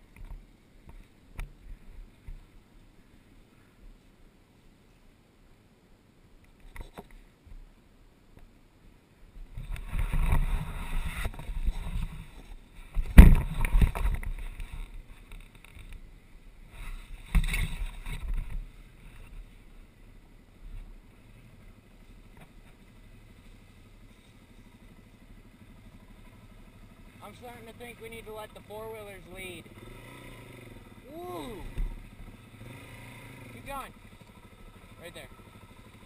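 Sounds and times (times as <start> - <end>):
off-road engines revving: 21.1 - 36.0.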